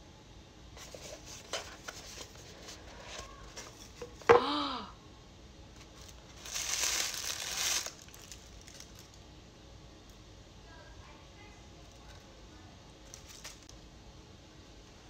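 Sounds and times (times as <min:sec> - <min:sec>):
tissue paper crinkling: 0:00.8 - 0:04.0, 0:05.8 - 0:09.2, 0:13.1 - 0:13.7.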